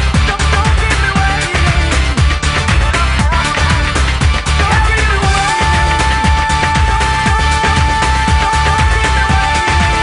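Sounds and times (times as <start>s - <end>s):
upbeat electronic dance music: 0.0s - 10.0s.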